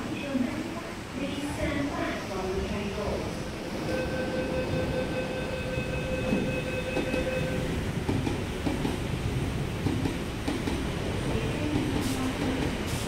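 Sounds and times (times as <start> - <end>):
low train hum: 0.0 - 13.0
door-closing warning tone: 3.8 - 7.7
train doors sliding shut: 11.7 - 13.0.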